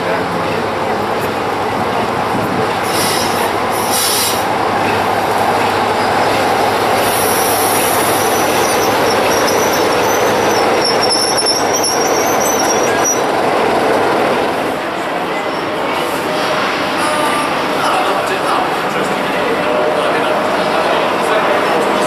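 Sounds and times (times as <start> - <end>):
diesel locomotive engine rumble: 0.0 - 22.0
high-pitched metallic squeal: 7.2 - 13.3.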